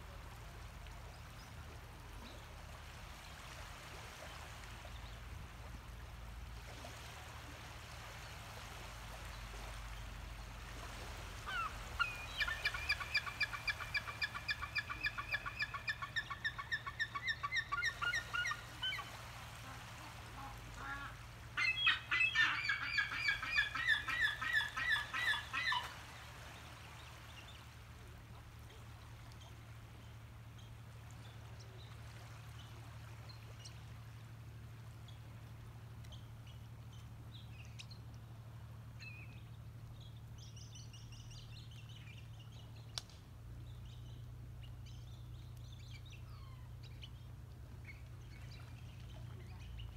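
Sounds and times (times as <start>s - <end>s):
gulls yelping calls: 11.4s - 19.1s, 21.6s - 25.9s.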